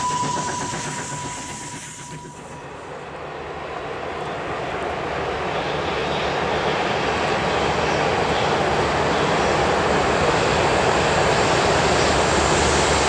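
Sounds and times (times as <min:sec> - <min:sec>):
steady high whine: 0:00.0 - 0:06.7
distant train rumble: 0:00.0 - 0:13.0
steam locomotive exhaust beats: 0:00.0 - 0:13.0.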